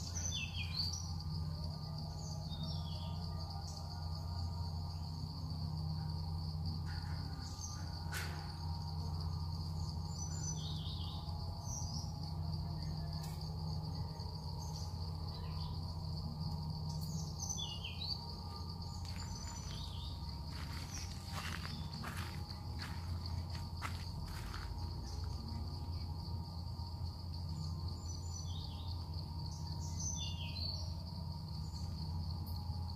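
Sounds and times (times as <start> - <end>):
high-pitched insect drone: 0.0 - 32.9
low steady hum: 0.0 - 32.9.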